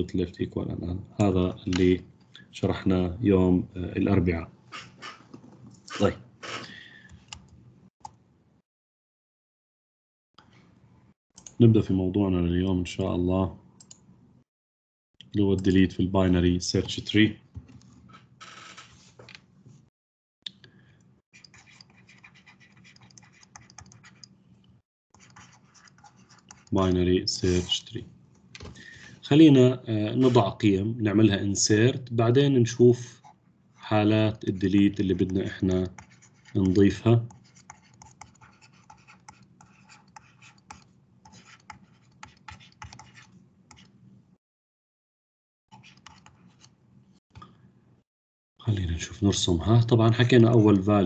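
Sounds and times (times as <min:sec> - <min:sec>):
stylus scratching on tablet: 0:04.7 - 0:05.3, 0:21.3 - 0:24.4, 0:25.2 - 0:27.9, 0:30.1 - 0:30.6, 0:33.1 - 0:44.0, 0:45.7 - 0:46.8, 0:50.1 - 0:51.0.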